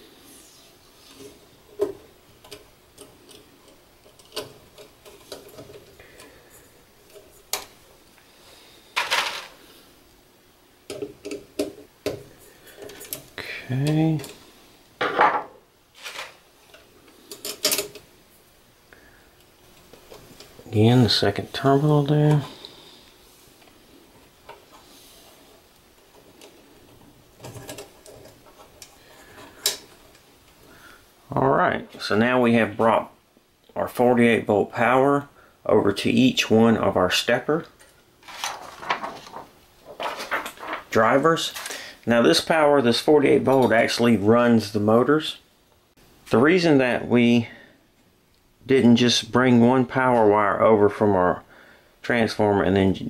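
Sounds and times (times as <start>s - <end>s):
hands handling wires clicking: 1.2s - 6.4s, 25.7s - 30.6s
scraping rustle: 15.9s - 16.4s, 38.2s - 41.7s.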